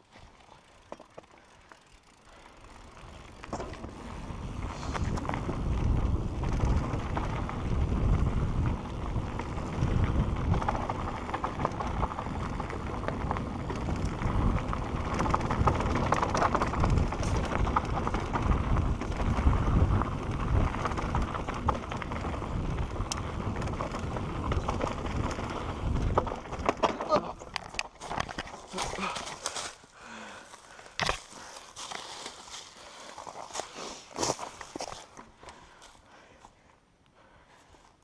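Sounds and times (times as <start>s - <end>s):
bike clicks and rattles: 0.0s - 36.2s
tyres rumbling on dirt: 3.3s - 29.6s
wind on microphone: 4.2s - 26.7s.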